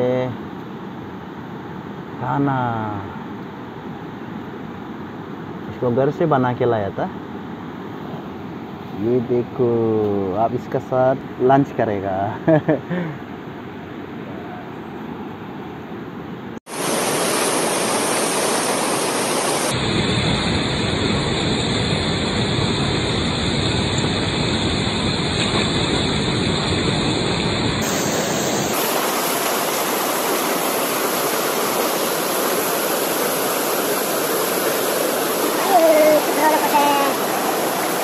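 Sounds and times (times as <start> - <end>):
river rushing over rocks: 16.7 - 19.8, 27.8 - 38.0.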